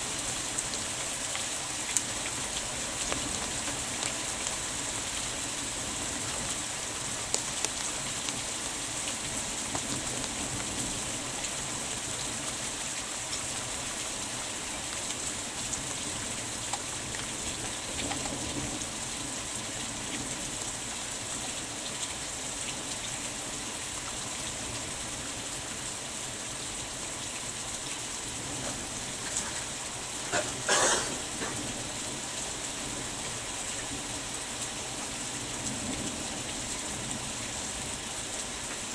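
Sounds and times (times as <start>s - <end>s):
heavy rain: 0.0s - 38.9s.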